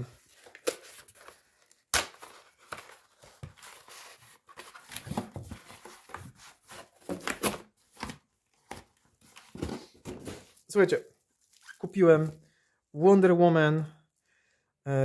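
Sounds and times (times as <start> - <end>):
cardboard rustling and tearing: 0.2 - 10.8.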